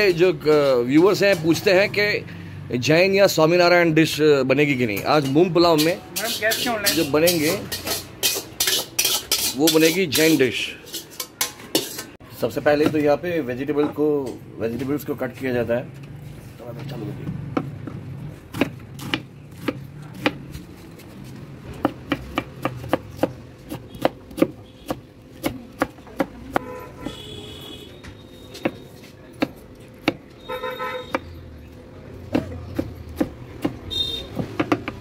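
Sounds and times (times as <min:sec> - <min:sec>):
knife chopping on wooden board: 0:17.5 - 0:20.5, 0:21.7 - 0:27.2, 0:28.6 - 0:30.2, 0:32.2 - 0:35.0
vehicle horn honking: 0:26.6 - 0:29.0, 0:30.4 - 0:31.3, 0:33.9 - 0:34.4.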